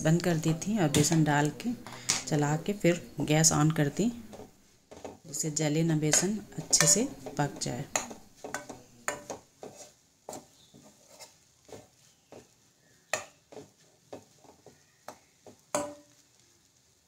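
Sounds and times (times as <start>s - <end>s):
spatula scraping a pan: 4.2s - 5.4s, 6.0s - 16.4s.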